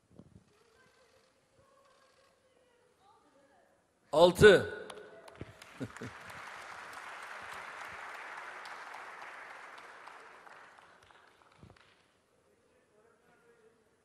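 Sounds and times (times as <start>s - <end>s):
audience applauding: 4.8s - 12.1s.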